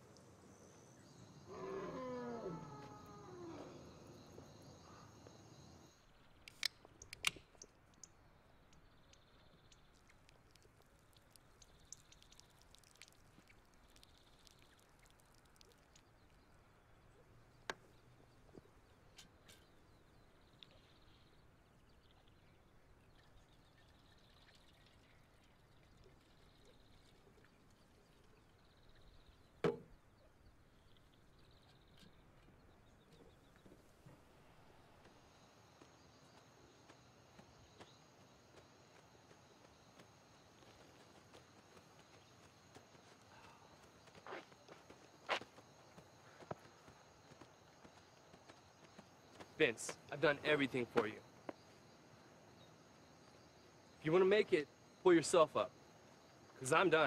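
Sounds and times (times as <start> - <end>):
animal call: 0.7 - 5.9, 40.4 - 45.6
small ticks: 2.6 - 16.6, 20.4 - 21.3, 35.0 - 50.2
sharp clicks: 6.4 - 9.8.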